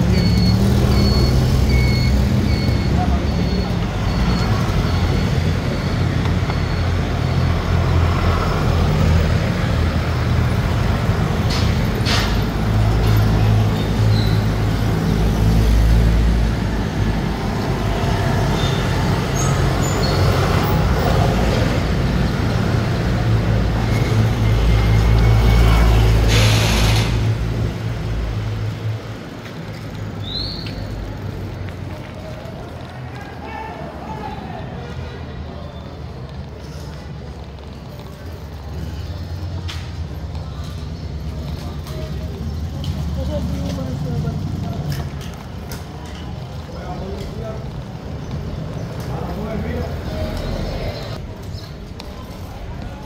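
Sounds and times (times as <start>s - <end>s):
low traffic rumble: 0.0s - 53.0s
vehicles and scooters passing: 0.0s - 53.0s
brief hissing: 26.2s - 27.3s.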